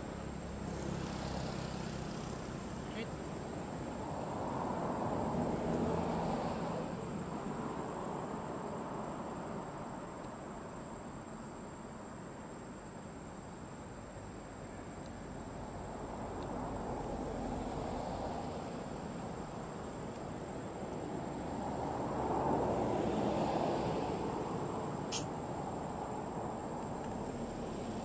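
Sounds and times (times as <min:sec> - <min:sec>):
high-pitched insect drone: 0:24.9 - 0:25.7.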